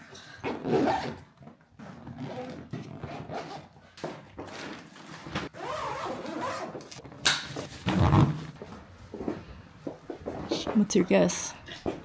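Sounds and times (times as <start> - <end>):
zipper pulls: 0.4 - 3.7, 5.5 - 7.0.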